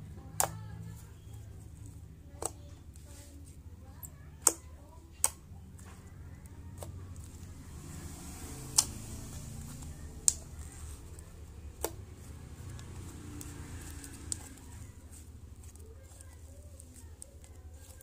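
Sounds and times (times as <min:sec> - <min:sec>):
low background hum: 0:00.0 - 0:18.0
slime clicking: 0:04.0 - 0:05.4, 0:08.6 - 0:14.8.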